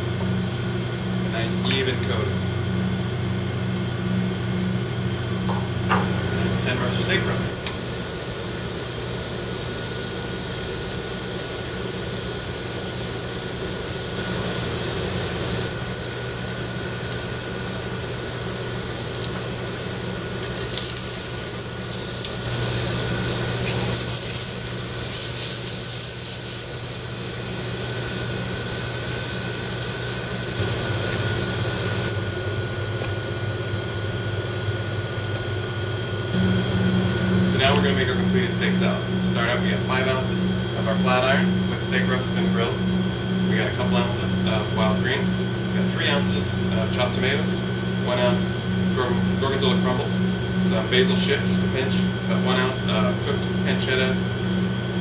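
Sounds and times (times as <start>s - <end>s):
steady low hum: 0.0s - 55.0s
steak sizzling on a grill: 7.6s - 32.2s.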